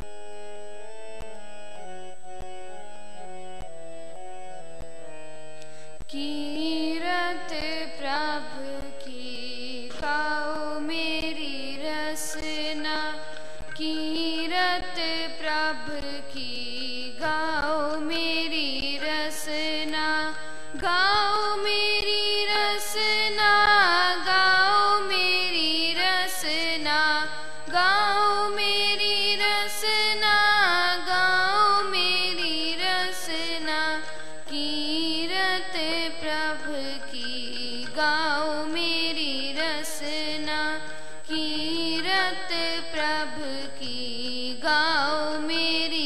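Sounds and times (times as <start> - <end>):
girl singing ornamented melody: 0.0 - 46.0
harmonium notes: 0.0 - 46.0
tabla strokes: 5.6 - 46.0.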